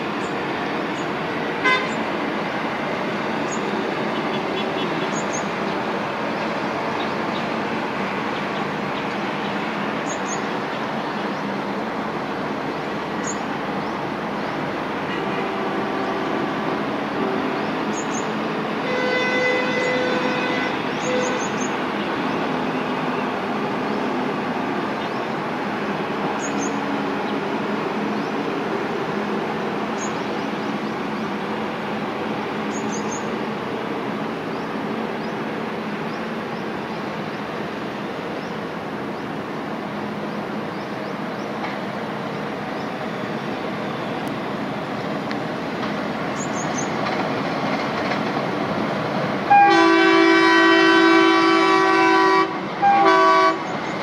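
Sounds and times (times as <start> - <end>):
diesel locomotive rumble: 0.0 - 54.0
locomotive horn: 1.6 - 2.1, 15.0 - 17.8, 18.8 - 21.8, 49.5 - 53.8
bird chirps: 5.0 - 5.5, 10.0 - 10.5, 30.0 - 30.5, 32.7 - 33.4, 46.4 - 47.0.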